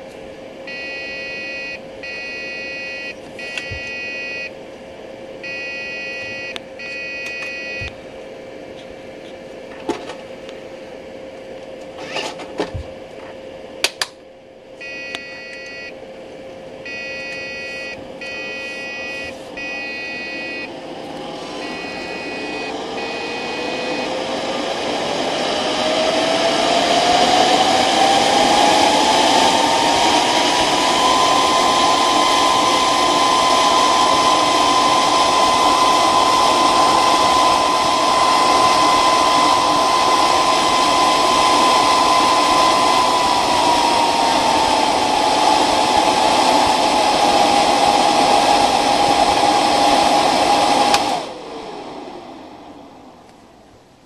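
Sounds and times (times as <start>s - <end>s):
computer whirring with whine: 0.0s - 54.0s.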